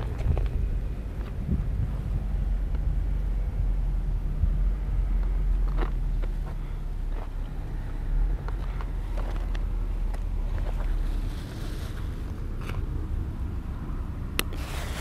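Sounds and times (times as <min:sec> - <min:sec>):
footsteps on gravel: 0:00.0 - 0:02.1, 0:05.2 - 0:07.4, 0:08.4 - 0:12.3
wind rumbling on microphone: 0:00.0 - 0:15.0.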